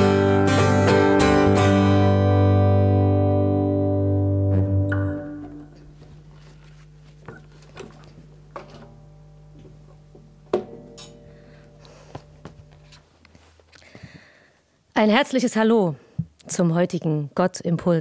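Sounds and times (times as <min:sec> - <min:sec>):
guitar strings ringing: 0:00.0 - 0:06.0, 0:07.3 - 0:13.0
acoustic guitars strumming: 0:00.0 - 0:06.8
low steady hum: 0:02.8 - 0:18.0
guitar being handled knocks: 0:07.2 - 0:11.4.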